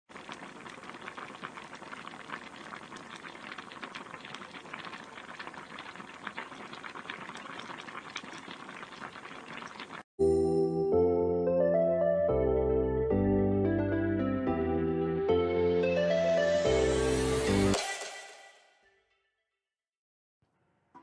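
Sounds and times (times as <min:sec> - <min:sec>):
broth bubbling at a simmer: 0:00.1 - 0:10.1.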